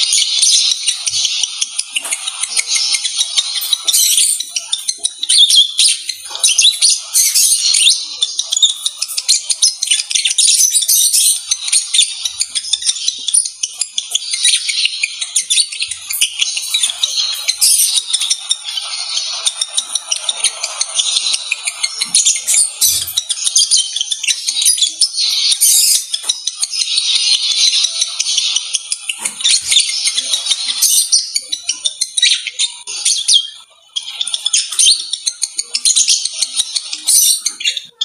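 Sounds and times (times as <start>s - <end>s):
birds chirping and twittering: 0.0s - 38.0s.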